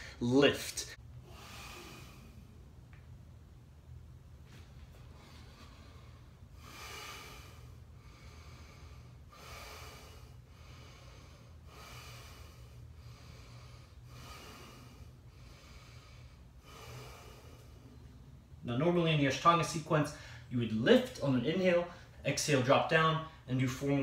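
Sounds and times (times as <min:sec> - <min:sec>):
man breathing deeply: 0:00.0 - 0:00.2, 0:01.0 - 0:02.8, 0:04.9 - 0:18.4, 0:20.1 - 0:20.5
faint low hum: 0:00.0 - 0:24.0.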